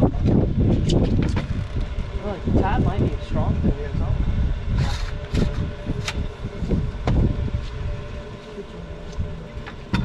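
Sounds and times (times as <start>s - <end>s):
wind buffeting microphone: 0.0s - 8.4s.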